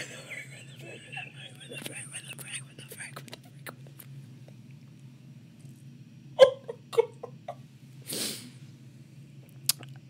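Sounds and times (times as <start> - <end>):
woman sobbing: 0.0 - 3.4.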